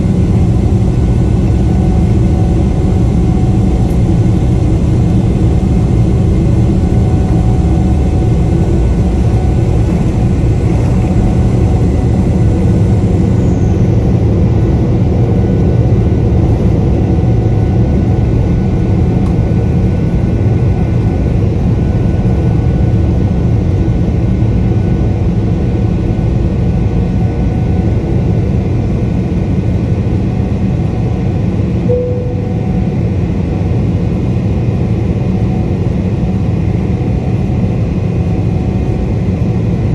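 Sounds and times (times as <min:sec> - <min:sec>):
jet engines roaring: 0:00.0 - 0:30.3.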